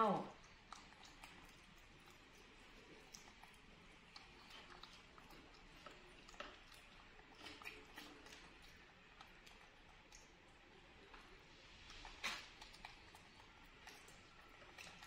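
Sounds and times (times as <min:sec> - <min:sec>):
small clicks and ticks: 0:00.4 - 0:11.3.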